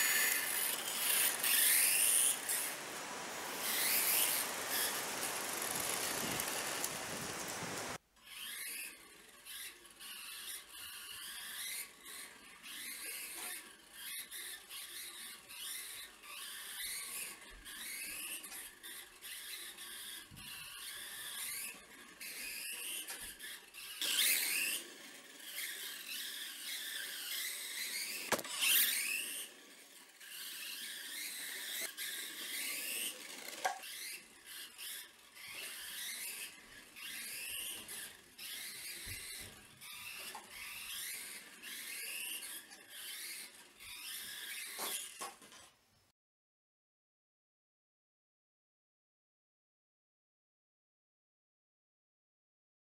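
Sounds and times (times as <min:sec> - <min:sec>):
toy car motor whining: 0:00.0 - 0:45.6.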